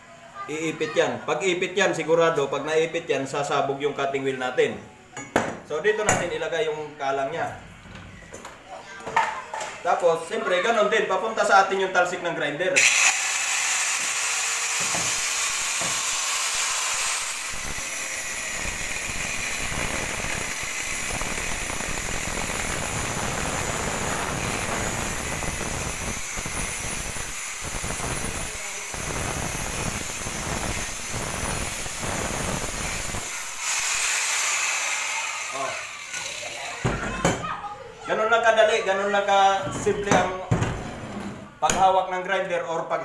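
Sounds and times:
grinder cutting steel pipe: 12.8 - 36.9
angle grinder whining: 12.8 - 37.0.

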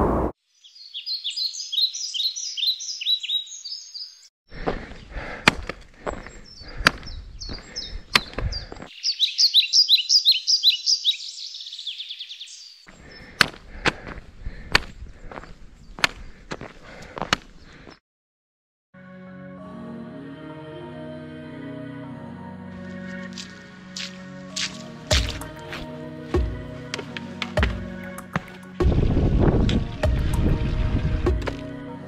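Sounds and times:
songbird singing: 0.4 - 4.3, 6.1 - 13.4
footsteps on asphalt: 4.5 - 8.9, 12.9 - 18.0, 23.1 - 28.6.

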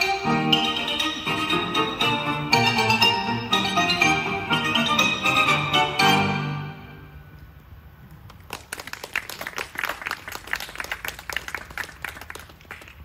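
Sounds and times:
people clapping: 8.1 - 13.0.

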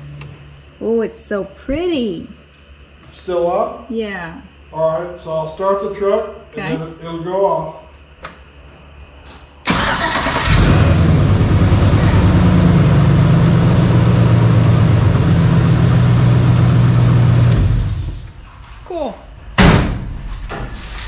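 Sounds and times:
engine idling: 9.7 - 18.4.

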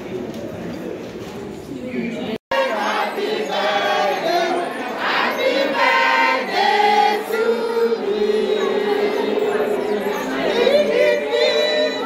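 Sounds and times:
women singing together: 2.5 - 12.0.

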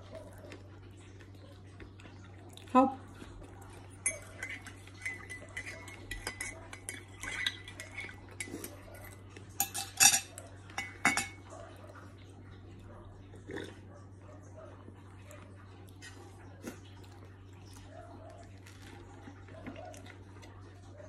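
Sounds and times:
spoon clinking in ceramic mug: 4.0 - 8.6, 9.6 - 11.4.

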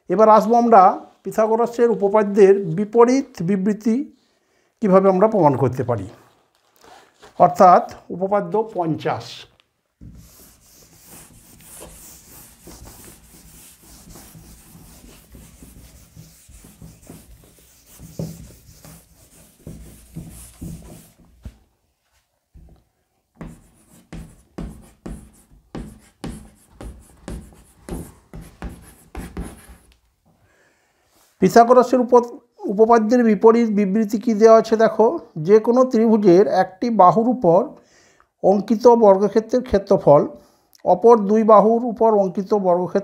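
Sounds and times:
chalk writing on blackboard: 10.0 - 21.3, 23.4 - 30.0
eraser rubbing on blackboard: 10.0 - 21.3, 23.4 - 29.9.

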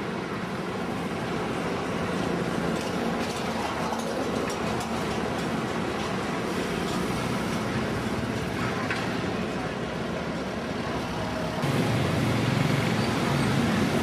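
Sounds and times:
street traffic noise: 0.0 - 14.0
vehicle engine droning: 4.2 - 14.0.

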